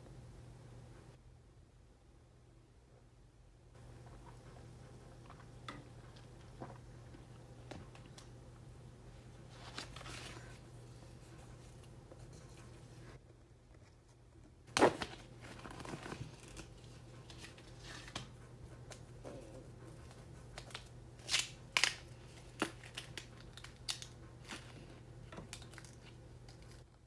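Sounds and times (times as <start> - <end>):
dry plant sheath crackling: 21.2 - 24.8.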